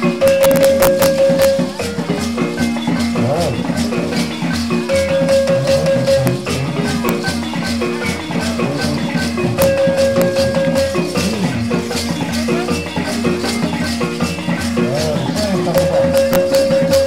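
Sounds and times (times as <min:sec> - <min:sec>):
drums: 0:00.0 - 0:17.0
rhythmic rattles: 0:00.0 - 0:17.0
short repeating pitched notes: 0:03.0 - 0:12.3.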